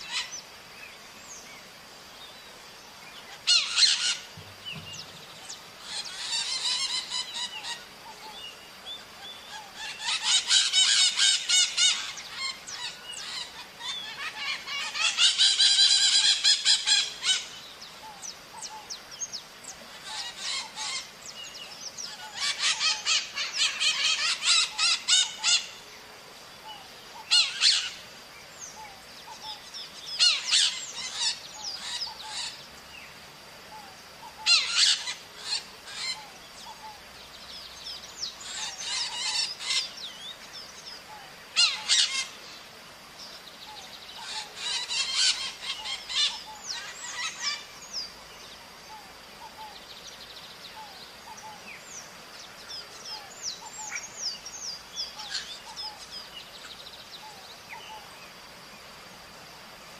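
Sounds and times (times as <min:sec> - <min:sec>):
soft bird chirps: 0:00.0 - 0:25.8
parrots screeching: 0:03.4 - 0:04.3, 0:05.8 - 0:07.8, 0:09.8 - 0:17.4, 0:20.0 - 0:21.1, 0:22.3 - 0:25.7, 0:27.3 - 0:28.0, 0:30.2 - 0:32.6, 0:34.4 - 0:36.2, 0:38.4 - 0:39.8, 0:41.6 - 0:42.4, 0:44.2 - 0:47.6.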